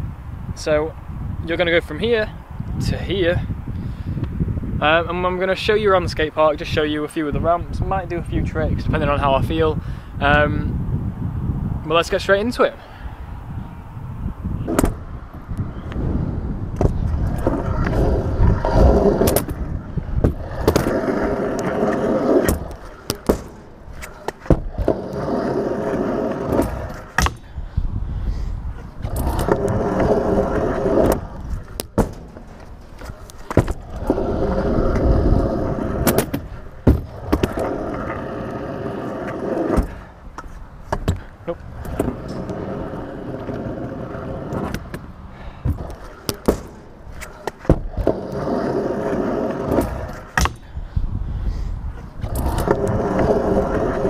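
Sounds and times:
scooter wheels rolling on concrete: 14.4 - 27.5, 28.5 - 50.9, 51.6 - 54.0.

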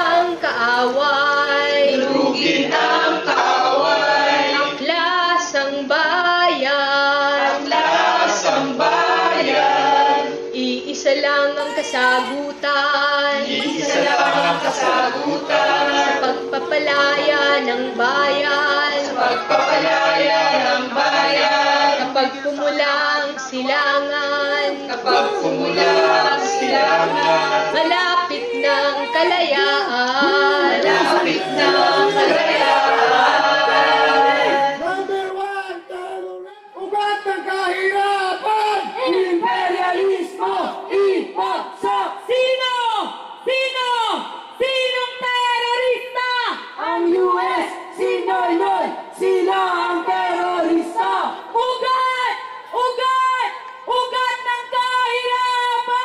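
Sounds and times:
woman singing: 0.0 - 2.8, 4.7 - 7.7, 10.3 - 19.8, 22.1 - 32.1, 44.6 - 56.0
voices singing along: 0.0 - 56.0.

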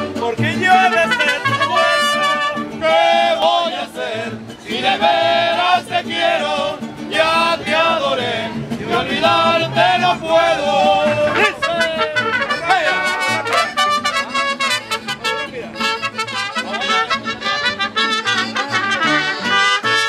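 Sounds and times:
trumpets playing melody: 0.0 - 2.8, 11.3 - 20.0
accordion: 0.0 - 20.0
strummed vihuela: 0.0 - 20.0.

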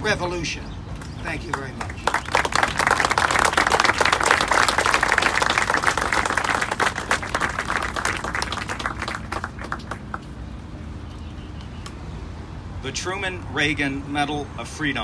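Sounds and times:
audience applauding: 1.5 - 10.3.

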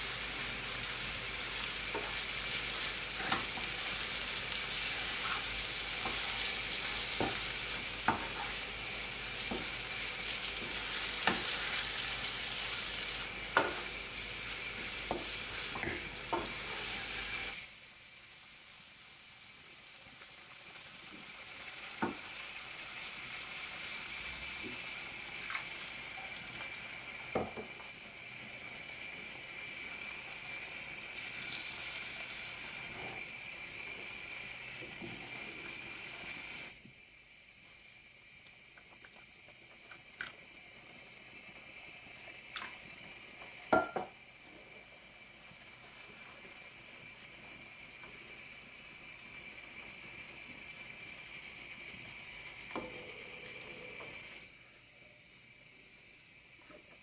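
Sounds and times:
food sizzling: 0.0 - 54.5.

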